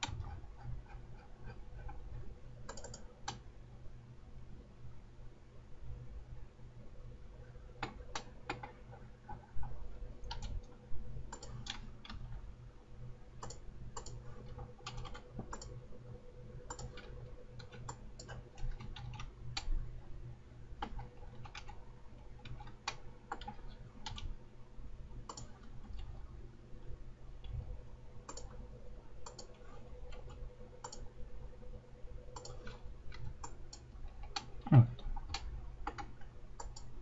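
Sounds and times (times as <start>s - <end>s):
computer mouse clicks: 0.0s - 2.0s, 2.6s - 3.4s, 7.8s - 10.7s, 11.3s - 12.4s, 13.4s - 15.8s, 16.7s - 19.8s, 20.8s - 24.3s, 25.2s - 26.2s, 28.2s - 28.6s, 29.2s - 31.1s, 32.3s - 36.9s
low steady hum: 0.0s - 37.0s
keyboard keystrokes: 2.6s - 3.4s.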